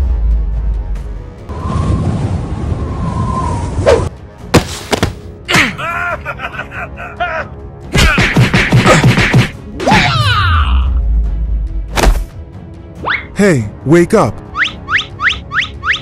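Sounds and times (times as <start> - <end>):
background music: 0.0 - 16.0
rushing whoosh: 1.5 - 4.1.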